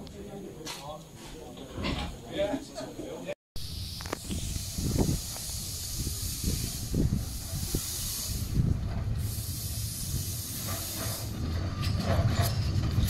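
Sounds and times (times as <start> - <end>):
steam locomotive hissing: 3.6 - 12.6.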